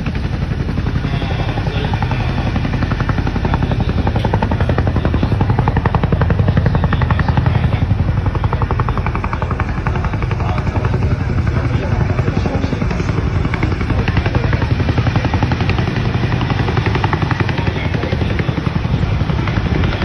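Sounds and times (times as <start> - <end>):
helicopter rotors chopping: 0.0 - 20.0.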